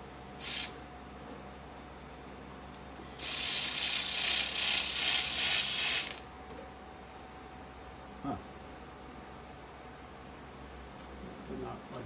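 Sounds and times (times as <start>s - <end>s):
laser welder hissing: 0.4s - 0.8s, 3.2s - 6.2s.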